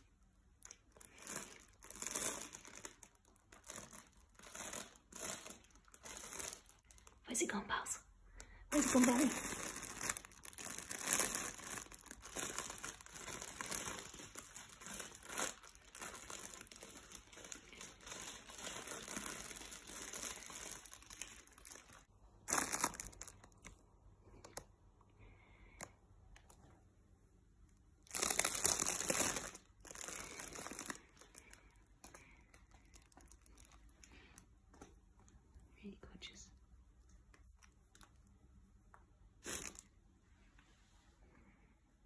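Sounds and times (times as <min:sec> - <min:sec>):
nylon play tunnel crinkling: 0:00.5 - 0:07.4, 0:08.7 - 0:23.7, 0:28.0 - 0:34.1.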